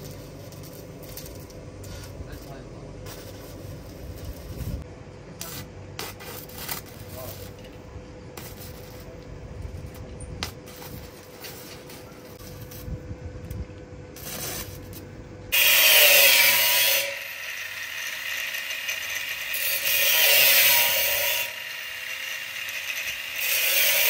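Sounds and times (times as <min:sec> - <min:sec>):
angle grinder cutting steel: 0:15.5 - 0:24.0.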